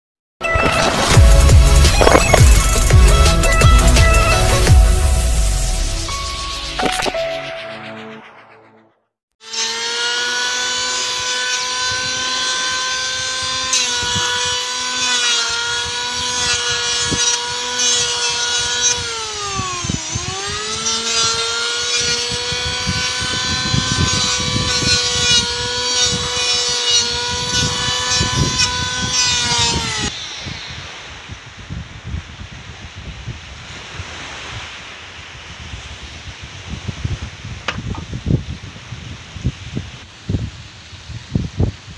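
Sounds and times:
power tool motor whining: 0.8 - 4.7, 9.4 - 30.2.

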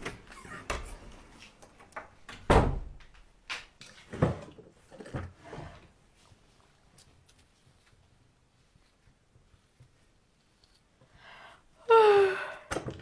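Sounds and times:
wooden door opening and shutting: 0.0 - 3.3.

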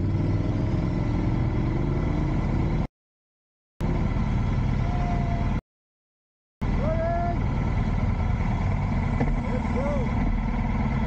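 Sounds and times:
motorcycles riding past: 0.0 - 2.8.

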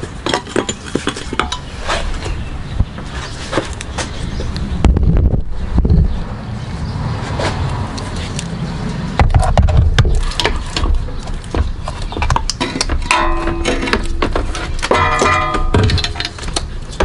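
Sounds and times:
metal parts clicking and knocking: 12.2 - 17.0.

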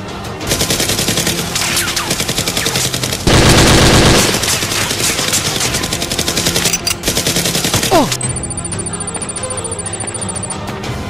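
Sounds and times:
automatic gunfire: 0.5 - 8.2.

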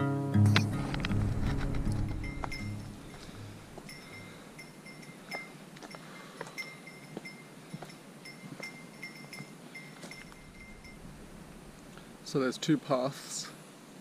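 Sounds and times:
soft footfalls on a trail: 0.8 - 12.3
small bell jingling: 2.1 - 11.3.

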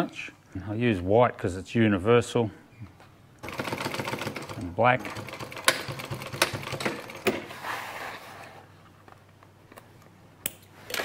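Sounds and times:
industrial sewing machine clatter: 3.4 - 7.3.

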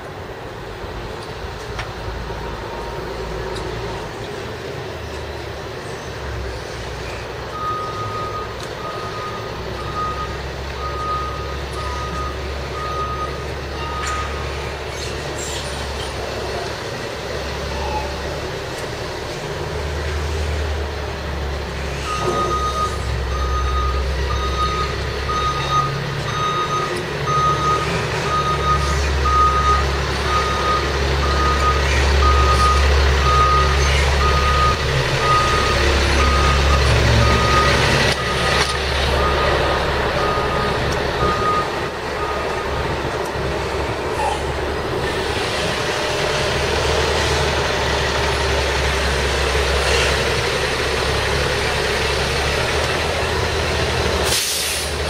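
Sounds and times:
engine humming: 0.0 - 55.0
backup alarm beeping: 7.6 - 14.5, 22.1 - 38.6, 39.2 - 42.8.

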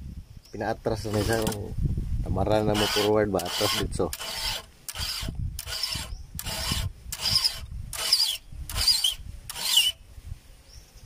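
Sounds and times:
file rasping on chainsaw chain: 1.0 - 1.6, 2.7 - 10.0.

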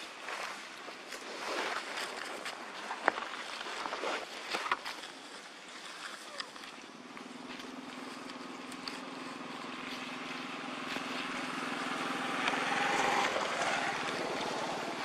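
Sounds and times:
vehicle engine passing by: 7.2 - 15.0.

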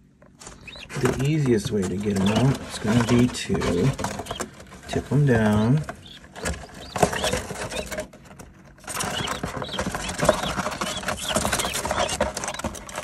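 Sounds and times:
chicks peeping: 0.3 - 13.0
feet scratching on cardboard: 8.8 - 13.0.

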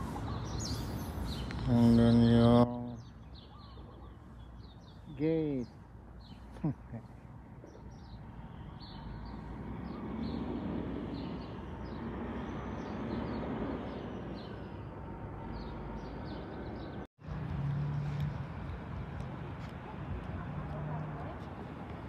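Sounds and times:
traffic rushing: 0.0 - 3.4, 4.2 - 22.0
small birds chirping: 0.0 - 17.1.

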